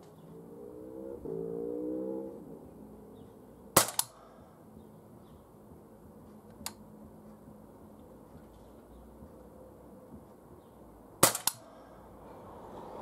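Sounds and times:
engine hum: 0.0s - 13.0s
air pistol firing: 3.8s - 4.2s, 11.2s - 11.7s
sharp crack and quieter snap: 3.8s - 4.3s, 11.2s - 11.7s.

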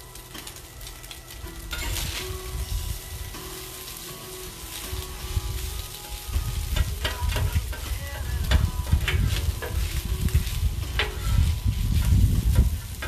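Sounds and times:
meat sizzling on griddle: 0.0s - 13.0s
metal spatula scraping steel: 1.6s - 13.0s
low rumble: 6.3s - 13.0s.

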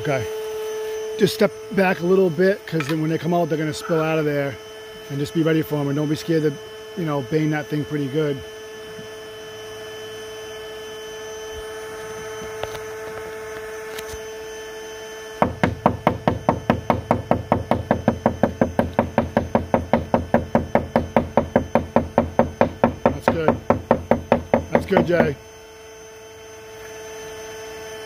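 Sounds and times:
vacuum motor humming: 0.0s - 28.0s
knocking on wooden wall: 15.4s - 25.3s.

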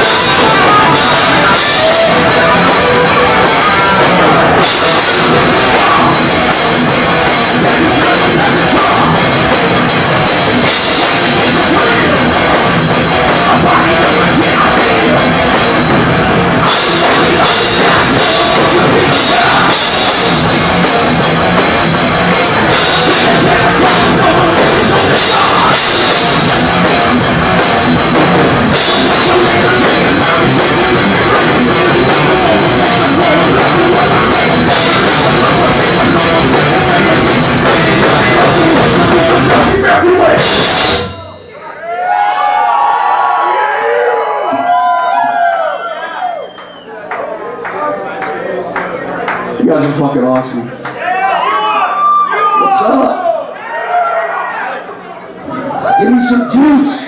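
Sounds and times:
fast drumming: 0.0s - 41.3s.

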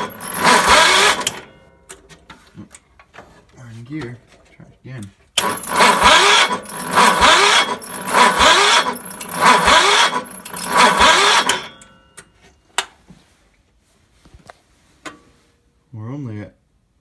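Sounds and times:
engine cranking with electric starter: 0.0s - 1.6s, 5.4s - 11.9s.

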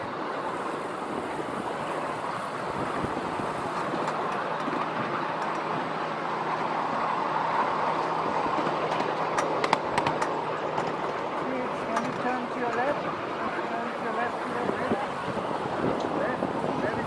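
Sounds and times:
miniature train wheels rumbling: 0.5s - 7.0s, 7.6s - 13.0s.

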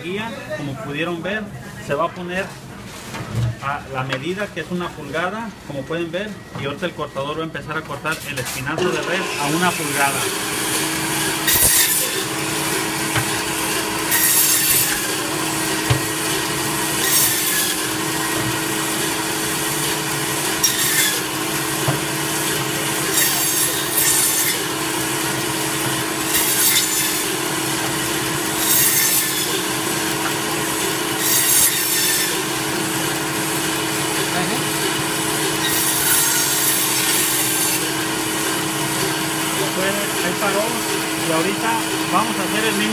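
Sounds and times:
band saw motor hum: 8.8s - 42.9s
saw blade cutting through bone: 8.9s - 18.1s, 20.6s - 21.4s, 22.4s - 24.8s, 26.2s - 27.4s, 28.6s - 29.9s, 31.2s - 32.5s, 35.5s - 38.1s.

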